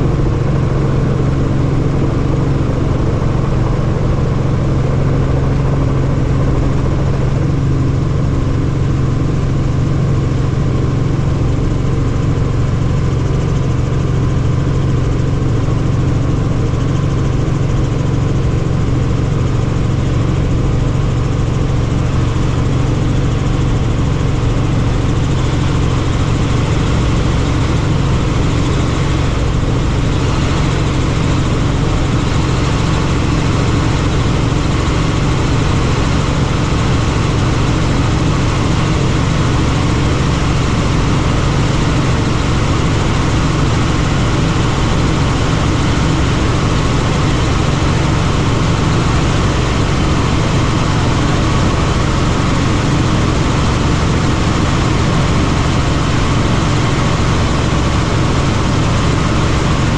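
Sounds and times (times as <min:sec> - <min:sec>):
helicopter engine and rotor: 0:00.0 - 0:59.9.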